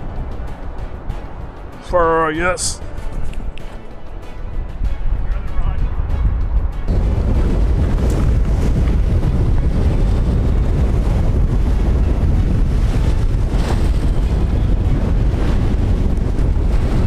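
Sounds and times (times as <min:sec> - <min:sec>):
wind buffeting microphone: 0:00.0 - 0:17.0
ocean waves washing: 0:06.9 - 0:17.0.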